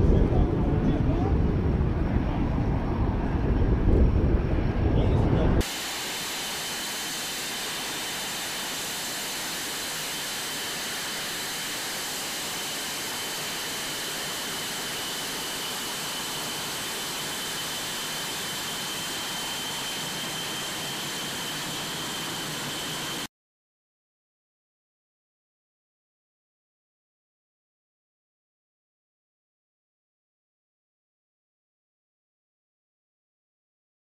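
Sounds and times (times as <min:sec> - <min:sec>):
jet engines idling: 0:00.0 - 0:23.3.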